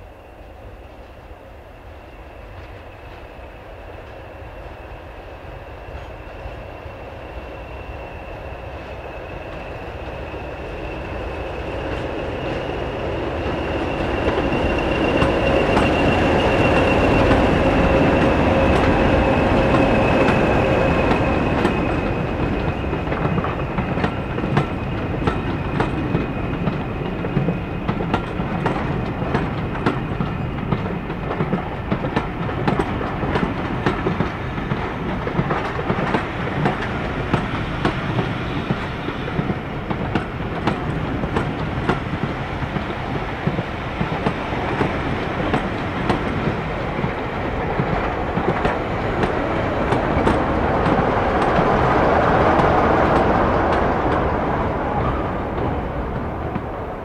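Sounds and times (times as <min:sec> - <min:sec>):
diesel train engine whine: 0:00.0 - 0:57.0
wheels click-clacking over rail joints: 0:11.2 - 0:56.8.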